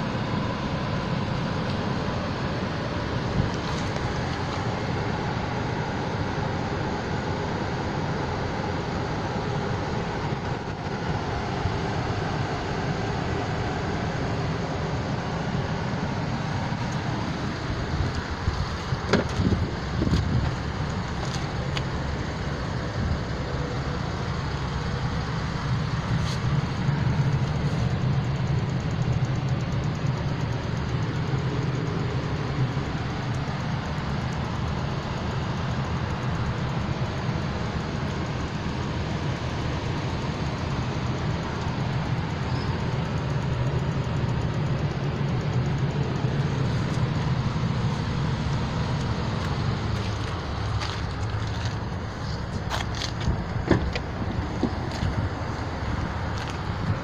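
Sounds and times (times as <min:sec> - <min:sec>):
low vehicle rumble: 0:00.0 - 0:57.0
car door clicks: 0:19.0 - 0:20.6, 0:52.8 - 0:55.2.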